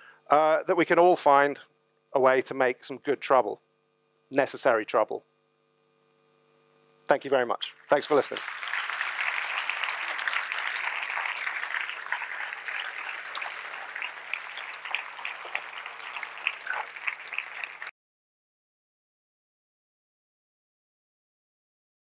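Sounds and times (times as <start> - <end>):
audience applauding: 7.6 - 17.9.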